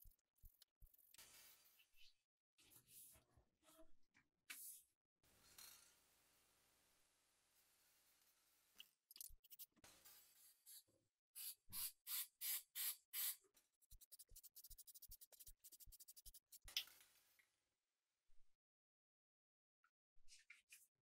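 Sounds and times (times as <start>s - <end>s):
spray can ball rattling: 9.1s - 9.7s, 12.1s - 16.8s
spray can hissing: 11.4s - 16.7s.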